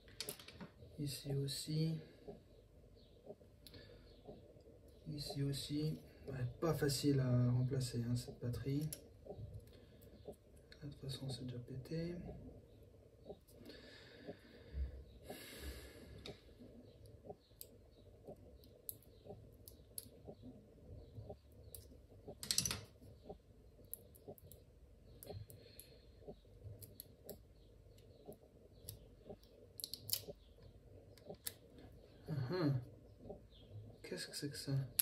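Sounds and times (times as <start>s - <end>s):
plastic parts clicking and tapping: 0.1s - 0.7s, 22.3s - 23.0s.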